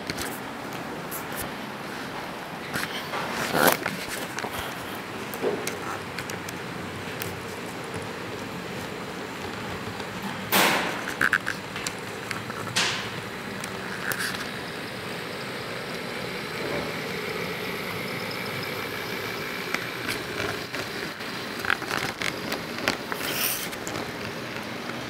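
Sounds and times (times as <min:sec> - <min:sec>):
model train wheels rumbling on rail: 0:11.2 - 0:25.0.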